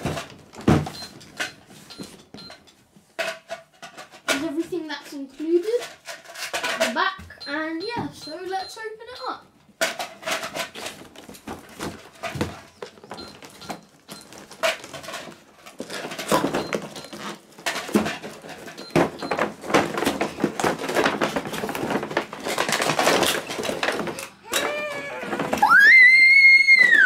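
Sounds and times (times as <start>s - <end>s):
cardboard and plastic crinkling: 10.0s - 26.0s.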